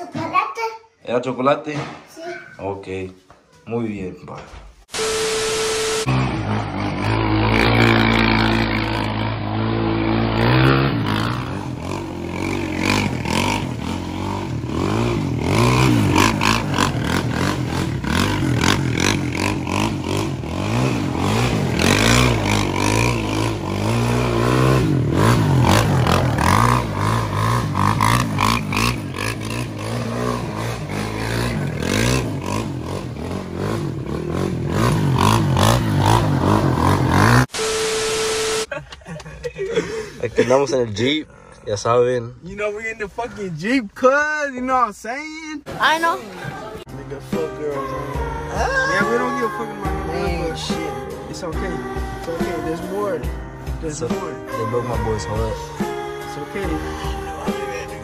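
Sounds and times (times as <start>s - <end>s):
quad engine revving: 5.0s - 38.7s.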